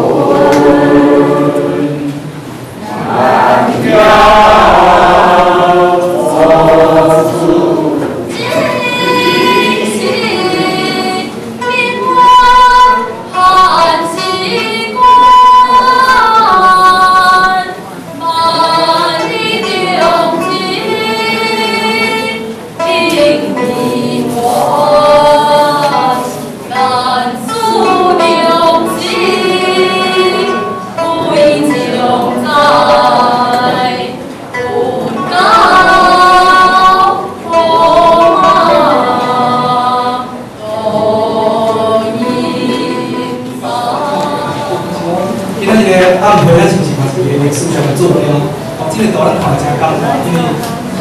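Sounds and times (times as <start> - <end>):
girl singing into microphone: 8.0 - 45.0.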